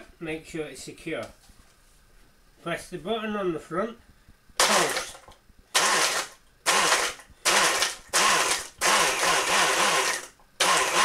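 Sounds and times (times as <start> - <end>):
blender motor pulsing: 4.6 - 11.0.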